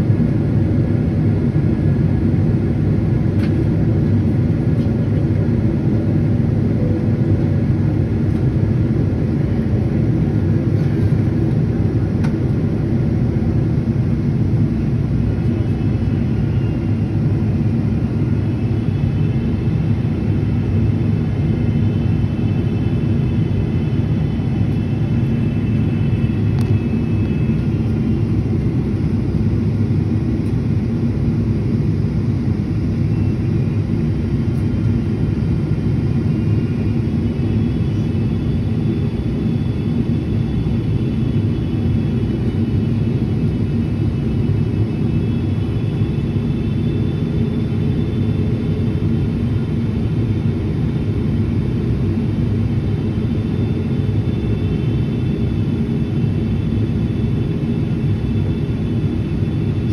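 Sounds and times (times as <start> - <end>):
airplane cabin rumble: 0.0 - 59.9
faint high whine: 15.3 - 59.9.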